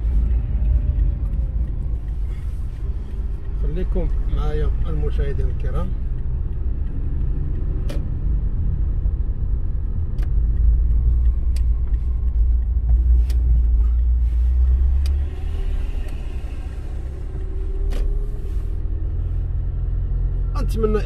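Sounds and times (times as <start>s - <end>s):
car driving rumble from inside: 0.0s - 21.0s.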